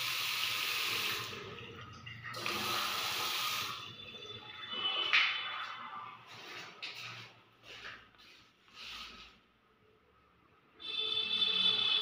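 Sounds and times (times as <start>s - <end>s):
tap water running into basin: 0.0s - 3.9s.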